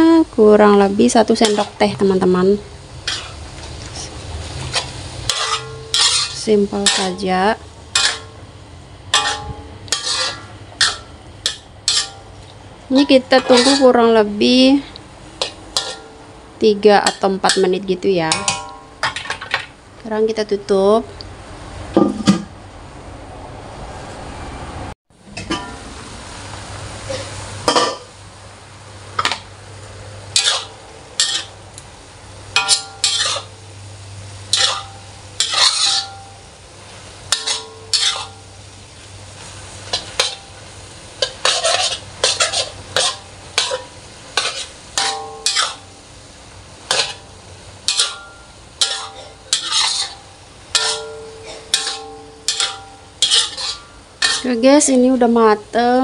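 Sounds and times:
food sizzling: 0:00.0 - 0:22.6, 0:25.1 - 0:56.0
metal spatula scraping wok: 0:01.3 - 0:19.7, 0:30.3 - 0:31.8, 0:32.5 - 0:33.7, 0:34.3 - 0:46.0, 0:46.7 - 0:55.1.

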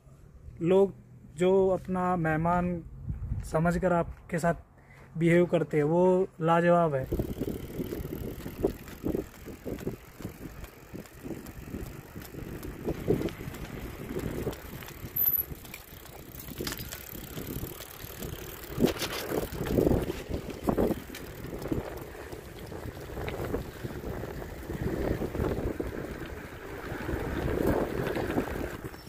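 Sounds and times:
wind buffeting microphone: 0:02.5 - 0:04.3, 0:07.0 - 0:29.0
bicycle bumps: 0:07.0 - 0:29.0
bicycles rolling on paved road: 0:07.0 - 0:29.0.

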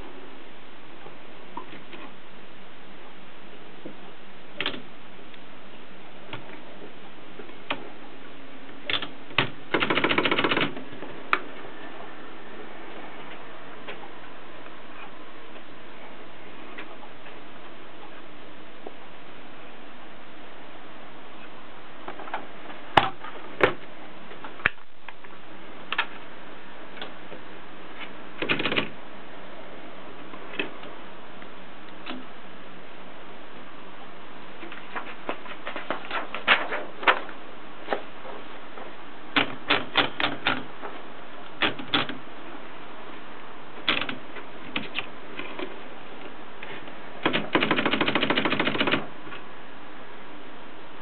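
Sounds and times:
typewriter clicks and clacks: 0:08.9 - 0:10.8, 0:28.4 - 0:28.9, 0:39.4 - 0:40.7, 0:41.6 - 0:42.2, 0:43.8 - 0:45.1, 0:47.2 - 0:49.1
typewriter mechanism clicking: 0:28.4 - 0:28.9, 0:43.8 - 0:45.1, 0:47.2 - 0:49.1.

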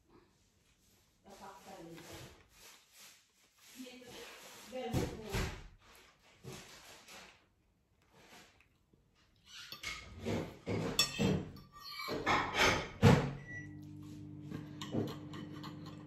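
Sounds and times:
cutlery and dishes clinking: 0:09.4 - 0:13.6, 0:14.4 - 0:16.0
microwave oven humming: 0:13.4 - 0:16.0.

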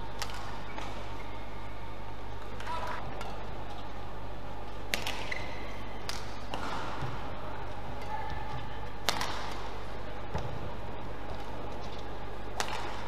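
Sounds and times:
steady hall hum: 0:00.0 - 0:13.0
racket hitting shuttlecock: 0:00.2 - 0:01.1, 0:04.8 - 0:10.6, 0:11.3 - 0:13.0
court shoes squeaking: 0:00.2 - 0:04.0, 0:04.7 - 0:09.3.

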